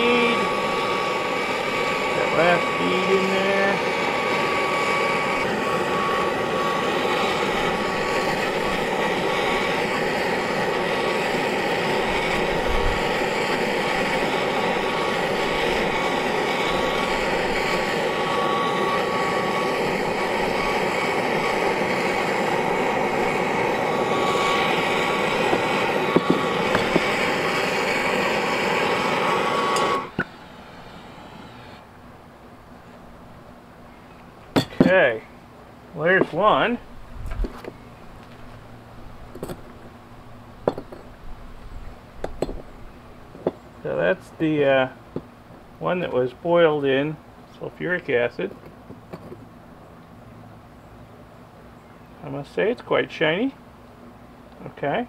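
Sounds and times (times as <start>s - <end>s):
torch flame burning: 0.0s - 32.8s, 35.9s - 49.8s.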